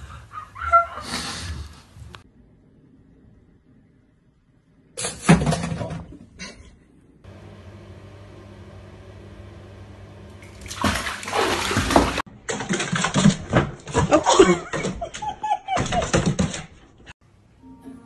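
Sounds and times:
water splashing in a bathtub: 10.3s - 14.8s
people laughing: 14.1s - 16.3s.

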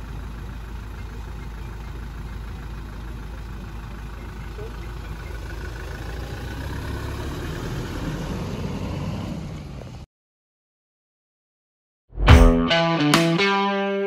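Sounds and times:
diesel engine running at low revs: 0.0s - 10.1s.

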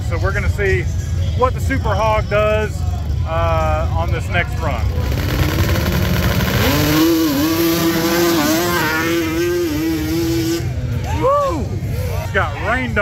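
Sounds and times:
mini bike engine revving: 4.9s - 10.8s.

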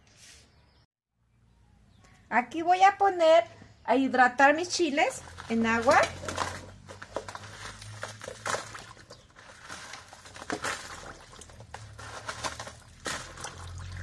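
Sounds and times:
dried chiles rustling and crackling: 4.5s - 14.0s
light water splashing: 10.2s - 14.0s.

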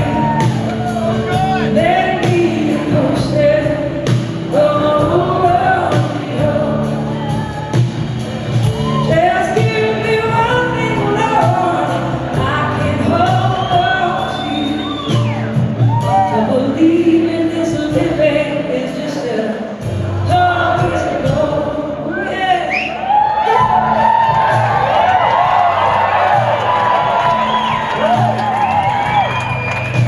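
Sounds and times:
blues-rock band playing live: 0.0s - 22.0s, 23.3s - 30.0s
woman singing lead: 0.0s - 25.7s.

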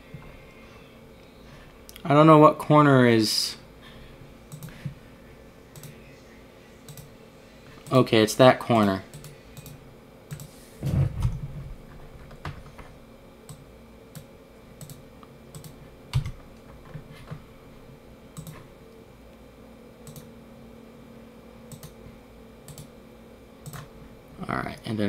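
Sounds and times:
faint steady hum: 0.0s - 25.0s
keyboard and mouse clicks: 4.5s - 4.8s, 5.8s - 6.0s, 6.9s - 7.1s, 8.8s - 10.5s, 13.5s - 16.4s, 18.4s - 18.6s, 20.0s - 20.3s, 21.7s - 22.0s, 22.7s - 22.9s, 23.6s - 23.9s.

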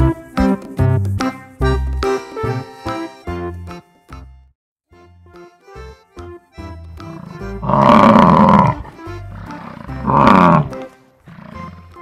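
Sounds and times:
background music: 0.0s - 12.0s
bison bellowing: 7.0s - 12.0s.

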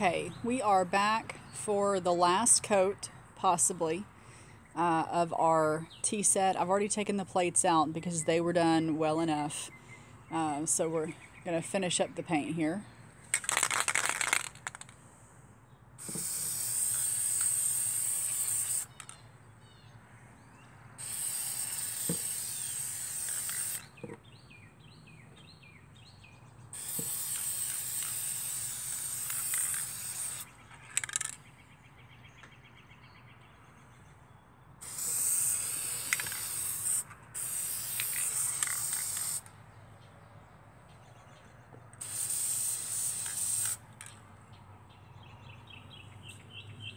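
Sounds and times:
spray-paint can hissing: 13.4s - 14.8s, 16.0s - 19.2s, 21.0s - 23.9s, 26.8s - 31.4s, 34.8s - 39.5s, 42.0s - 43.8s.

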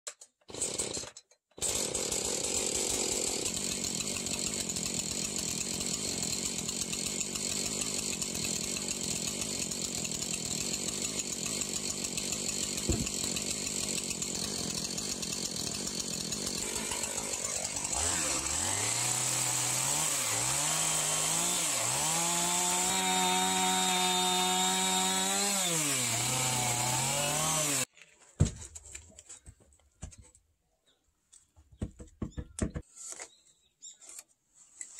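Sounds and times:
chainsaw revving: 0.5s - 1.0s, 1.6s - 27.9s.

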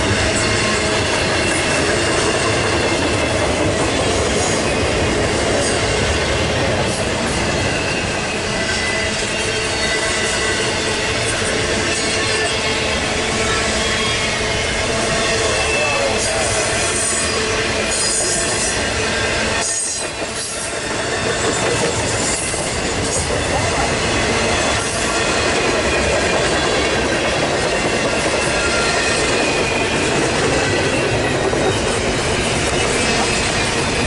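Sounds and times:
freight train rumbling past: 0.0s - 34.0s
wheel squeal: 15.1s - 23.8s, 27.8s - 34.0s.

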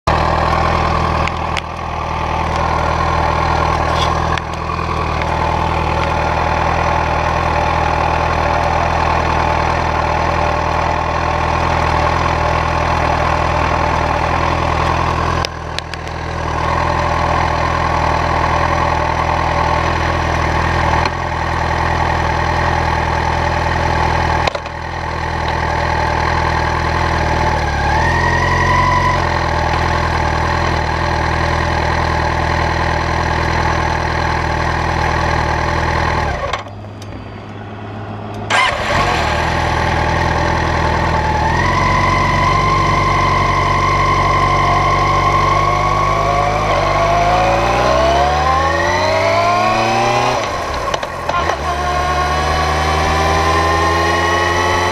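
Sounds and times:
motorcycle engine idling: 0.1s - 37.1s, 38.1s - 47.4s.

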